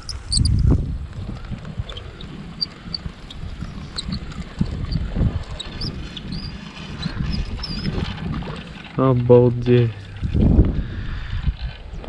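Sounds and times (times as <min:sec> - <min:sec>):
low rumble: 0:00.0 - 0:12.0
wind buffeting microphone: 0:00.0 - 0:12.0.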